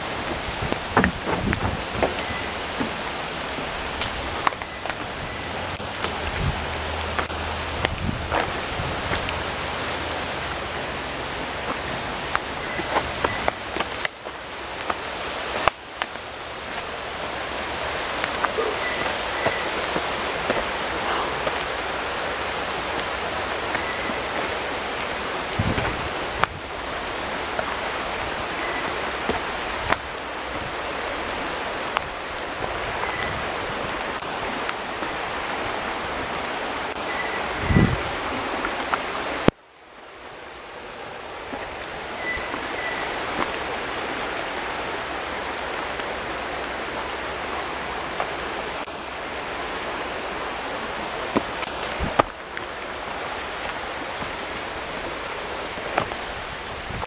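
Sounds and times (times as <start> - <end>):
rain falling on leaves: 0.0 - 57.0.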